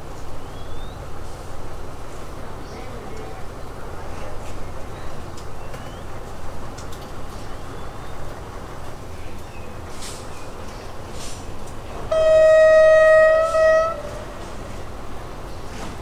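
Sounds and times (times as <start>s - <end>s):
locomotive air horn blast: 12.1s - 14.8s.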